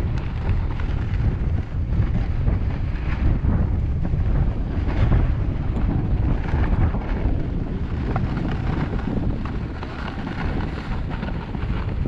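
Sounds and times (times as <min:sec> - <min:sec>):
wind buffeting microphone: 0:00.0 - 0:12.0
skis sliding on packed snow: 0:06.2 - 0:12.0.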